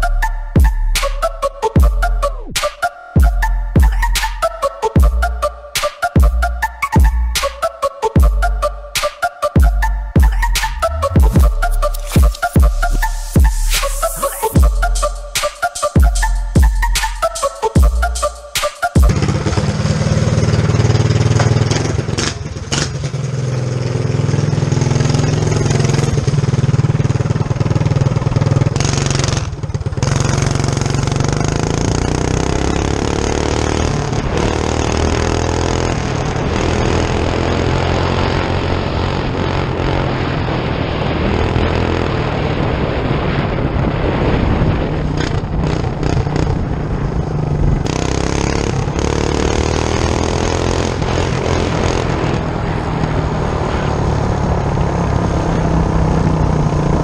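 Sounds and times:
mini bike engine running hard: 19.0 - 43.5, 44.4 - 57.0.

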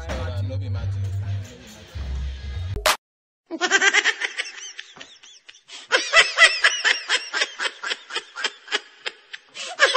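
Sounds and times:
rapid laughter: 3.6 - 9.9.

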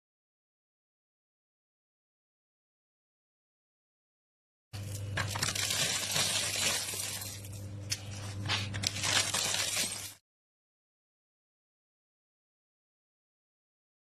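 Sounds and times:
corn sheller scraping: 4.8 - 10.2.

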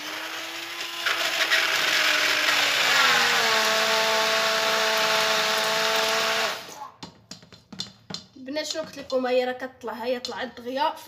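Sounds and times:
immersion blender motor whine: 0.0 - 6.8.

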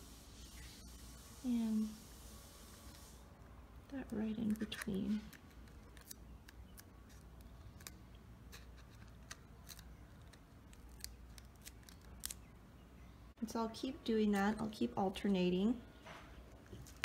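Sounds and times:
plastic petals clicking and crackling: 3.8 - 12.5.

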